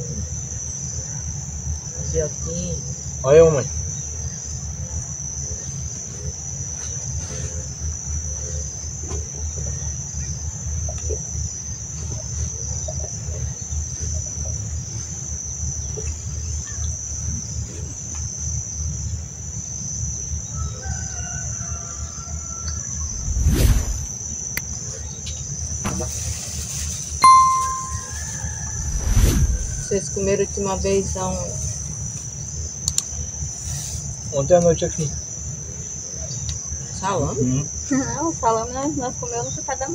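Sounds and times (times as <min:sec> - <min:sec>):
insects chirring: 0:00.0 - 0:39.9
low outdoor rumble: 0:23.0 - 0:24.2, 0:28.6 - 0:30.2.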